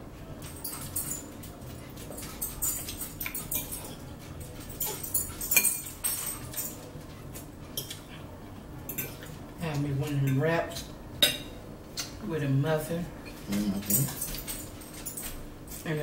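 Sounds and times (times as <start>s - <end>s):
forks clicking on ceramic bowls: 2.2s - 6.8s.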